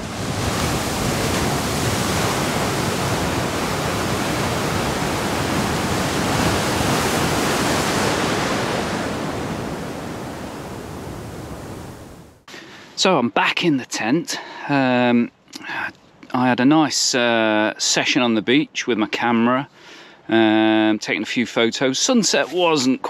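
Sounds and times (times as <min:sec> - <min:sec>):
sea surf: 0:00.0 - 0:12.4.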